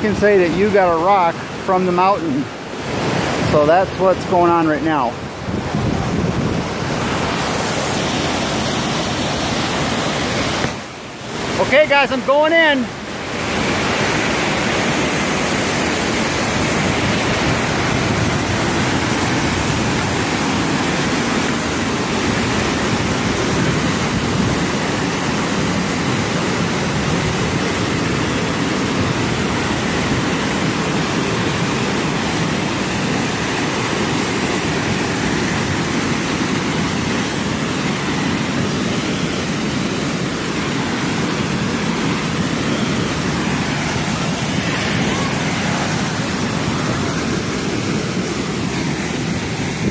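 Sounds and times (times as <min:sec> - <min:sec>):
waterfall rushing onto rocks: 0:00.0 - 0:49.9.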